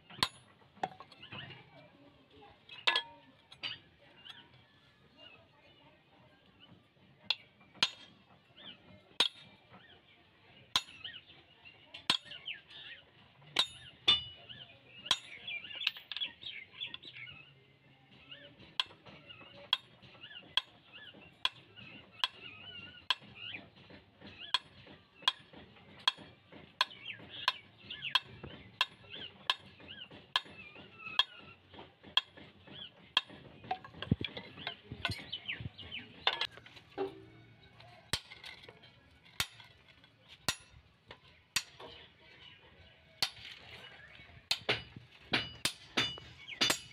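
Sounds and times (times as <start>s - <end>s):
birds chirping: 0.0s - 46.9s
hammer tapping metal punch: 44.5s - 46.9s.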